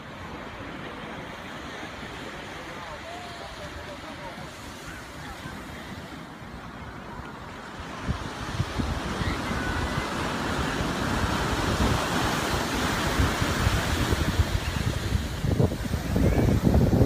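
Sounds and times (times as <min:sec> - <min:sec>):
ocean surf: 0:00.0 - 0:17.0
wind buffeting microphone: 0:08.0 - 0:17.0.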